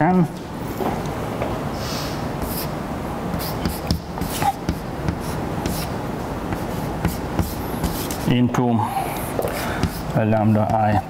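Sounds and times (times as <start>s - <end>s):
steady background hiss: 0.0s - 11.0s
chalk scratching on blackboard: 2.4s - 8.4s.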